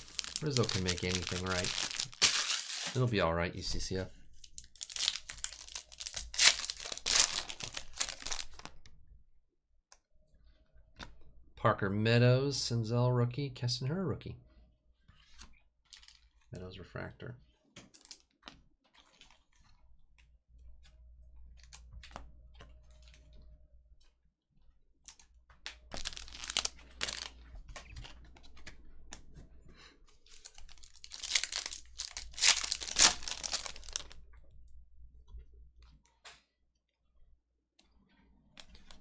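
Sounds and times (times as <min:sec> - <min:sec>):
foil wrapper tearing and crinkling: 0:00.0 - 0:03.1, 0:04.4 - 0:08.8, 0:25.9 - 0:27.3, 0:30.3 - 0:34.2.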